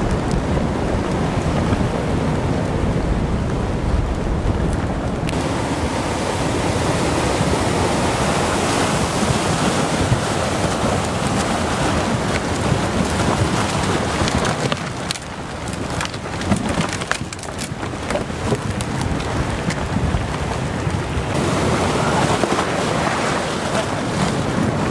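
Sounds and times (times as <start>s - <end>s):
floodwater rushing: 0.0s - 24.9s
debris clicking and cracking: 12.0s - 19.9s.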